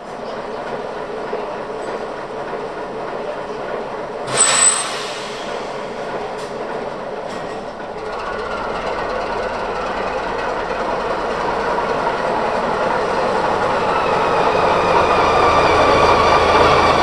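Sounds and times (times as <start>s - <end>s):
diesel railcar engine drone: 0.0s - 17.0s
loud hiss with high squeal: 4.3s - 5.9s.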